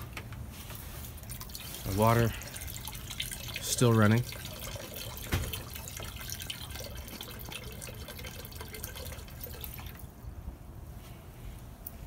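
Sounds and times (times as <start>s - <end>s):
water trickling into a bucket: 0.9s - 10.2s.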